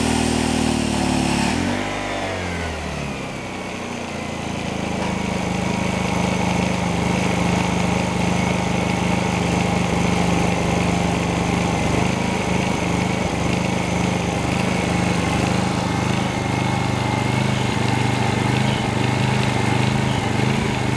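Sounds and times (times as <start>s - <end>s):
generator engine running: 0.0s - 20.9s
thin high whine: 10.2s - 20.9s.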